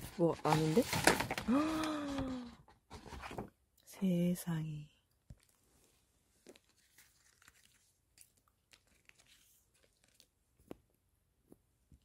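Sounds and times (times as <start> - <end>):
cards and paper being shuffled: 0.0 - 3.5, 5.3 - 10.9.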